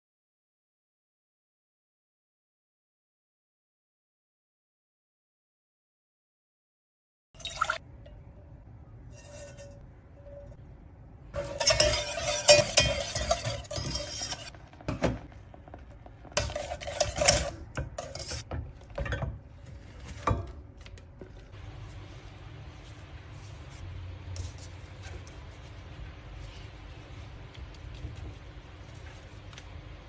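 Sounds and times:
spoon scraping a saucepan: 9.0s - 10.6s, 11.4s - 14.6s, 16.3s - 18.6s.

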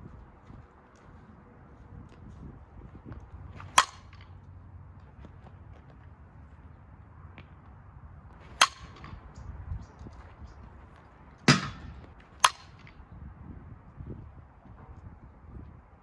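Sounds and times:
bat cracking against ball: 3.6s - 4.4s, 8.4s - 9.3s, 11.4s - 13.0s.

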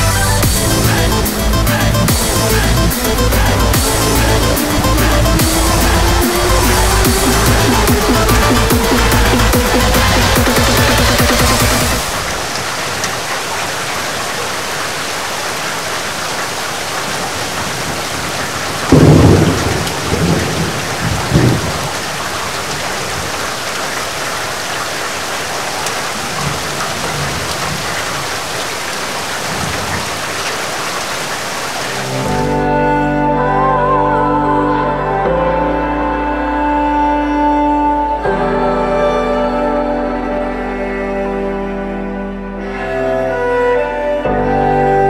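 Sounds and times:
heavy rain pouring: 0.0s - 45.0s
thunder clap rumbling: 0.4s - 14.1s, 17.0s - 23.7s.

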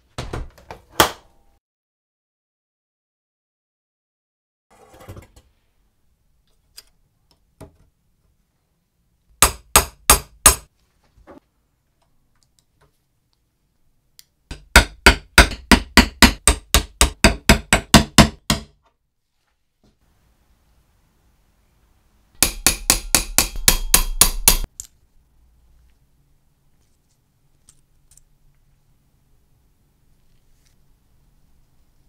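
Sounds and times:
small hammer tapping metal: 14.5s - 18.8s, 22.4s - 24.7s.

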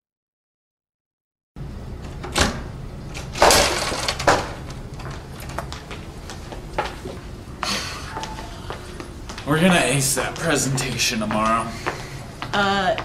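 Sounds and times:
crashing clatter: 3.4s - 4.6s
school hallway background noise: 3.5s - 13.0s.

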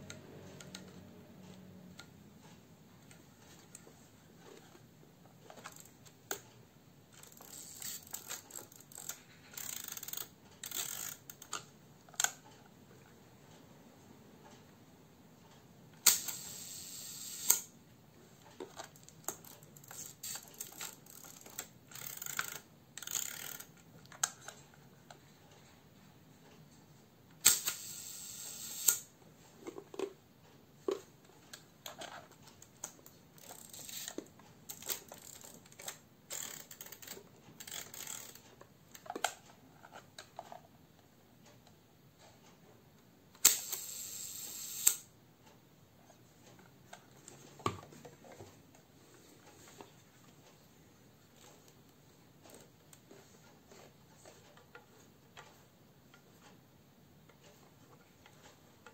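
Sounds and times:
camera knobs clicking and ratcheting: 5.5s - 6.4s, 7.2s - 12.4s, 18.6s - 24.6s, 31.8s - 40.6s
camera shutter click and buzz: 16.0s - 17.7s, 27.4s - 29.1s, 43.4s - 45.1s.

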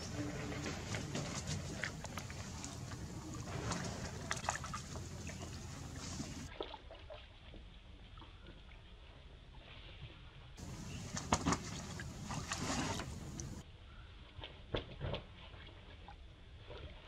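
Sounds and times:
water sloshing and splashing: 0.0s - 8.8s, 10.6s - 13.6s.

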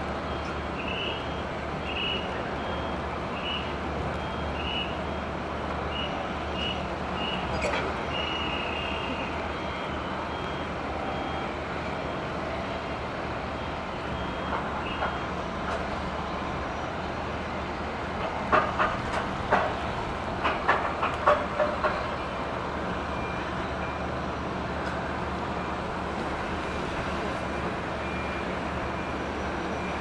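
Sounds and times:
metallic clanks and knocks: 20.4s - 22.1s.

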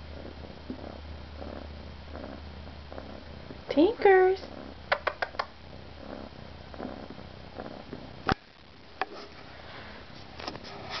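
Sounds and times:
kitten purring: 0.0s - 9.6s.

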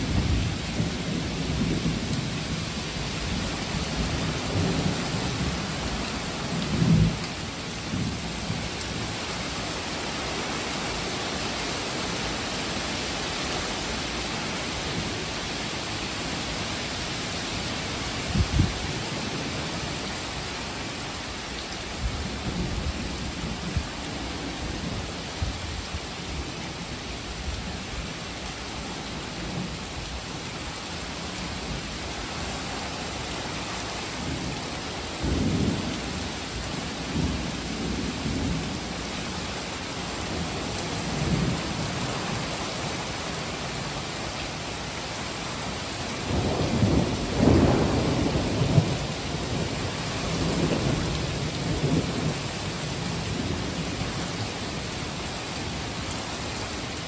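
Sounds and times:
heavy rain pouring: 0.0s - 57.0s
thunder rumbling: 46.2s - 52.4s.

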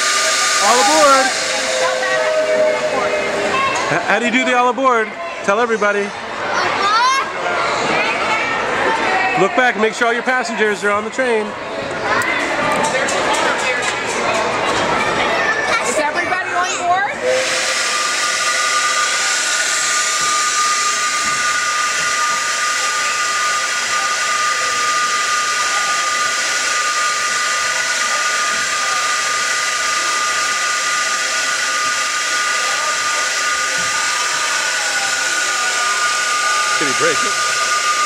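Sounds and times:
hiss of rushing air: 0.0s - 4.1s, 17.3s - 38.0s
toy train whistle blowing: 0.0s - 4.4s, 17.2s - 38.0s.

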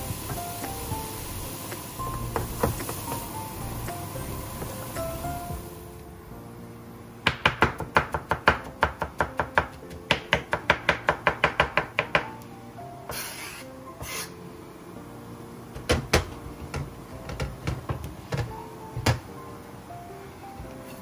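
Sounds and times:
knife chopping on wooden board: 7.3s - 12.3s.

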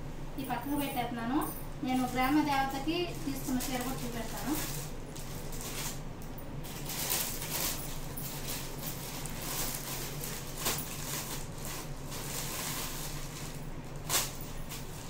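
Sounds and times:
plastic packaging crinkling: 2.1s - 15.0s.

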